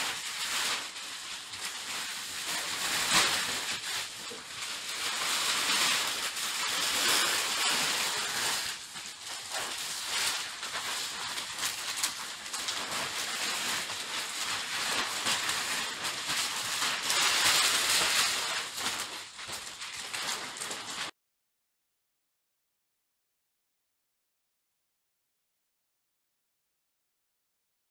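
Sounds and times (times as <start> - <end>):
plastic bags rustling: 0.0 - 21.1.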